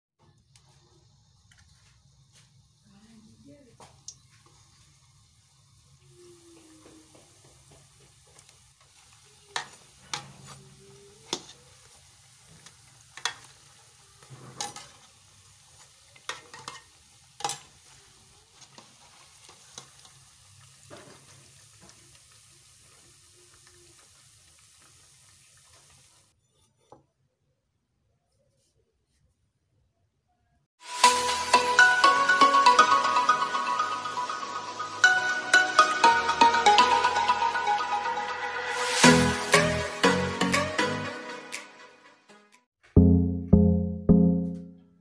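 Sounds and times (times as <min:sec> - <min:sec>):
dough sizzling in hot oil: 0:00.2 - 0:26.4, 0:38.6 - 0:39.6.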